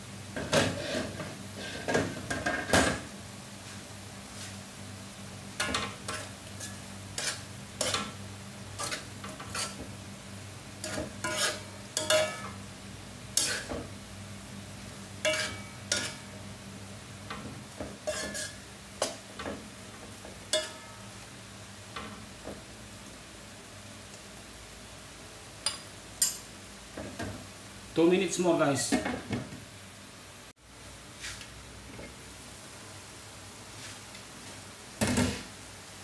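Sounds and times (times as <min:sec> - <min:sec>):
faint sizzle: 0:00.0 - 0:36.0
spatula scraping a wok: 0:00.4 - 0:02.7, 0:05.6 - 0:09.9, 0:10.8 - 0:12.6, 0:13.3 - 0:13.8, 0:15.2 - 0:16.4, 0:18.0 - 0:19.2.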